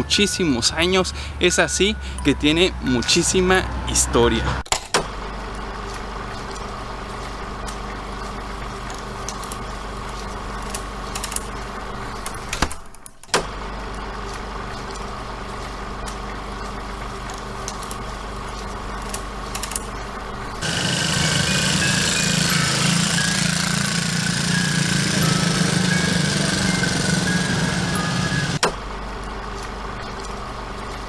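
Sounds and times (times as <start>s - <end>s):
motor hum: 13.4s - 31.0s.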